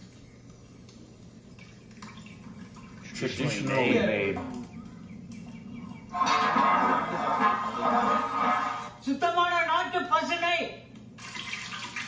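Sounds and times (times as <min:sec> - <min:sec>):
low hum: 0:04.4 - 0:09.0
oil trickling into metal pot: 0:11.2 - 0:12.0.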